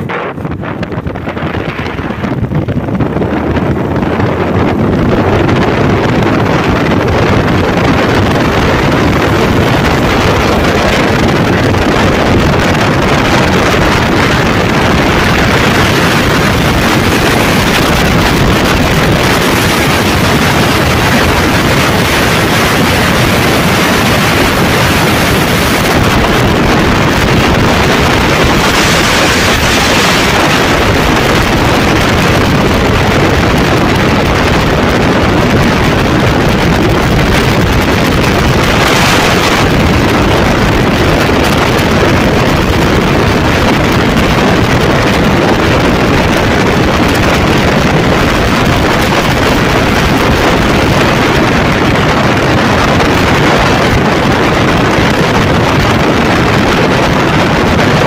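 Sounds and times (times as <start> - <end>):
loud wind over microphone: 0.0 - 58.0
motorcycle engine drone: 0.0 - 58.0.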